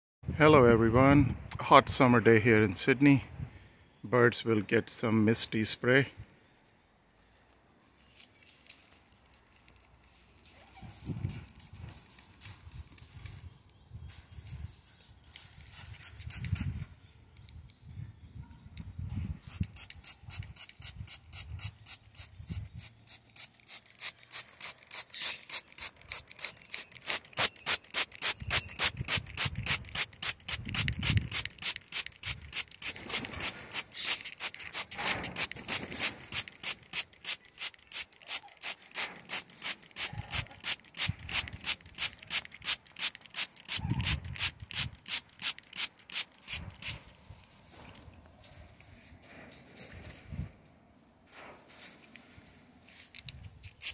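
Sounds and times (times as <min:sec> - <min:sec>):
spray bottle spraying: 0:08.4 - 0:13.4, 0:14.3 - 0:16.8, 0:19.5 - 0:47.0, 0:53.0 - 0:53.9.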